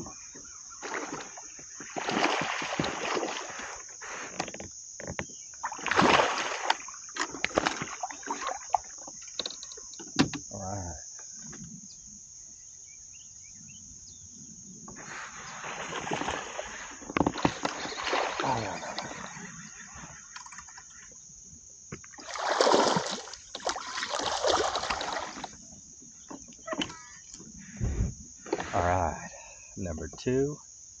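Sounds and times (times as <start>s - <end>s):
fish splashing at water surface: 0.8s - 3.8s, 5.6s - 9.0s, 15.6s - 19.4s, 22.2s - 25.6s.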